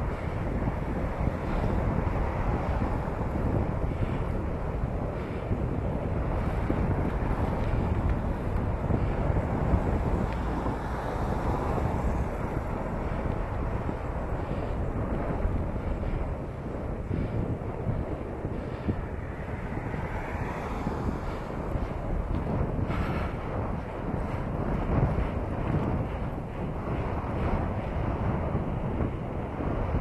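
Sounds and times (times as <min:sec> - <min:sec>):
street traffic: 0:00.0 - 0:16.6, 0:17.4 - 0:24.6
wind buffeting microphone: 0:00.0 - 0:30.0.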